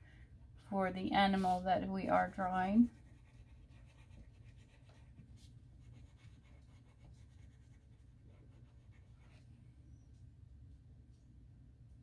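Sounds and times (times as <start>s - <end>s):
low steady hum: 0.0s - 12.0s
pencil scratching on paper: 1.3s - 9.5s.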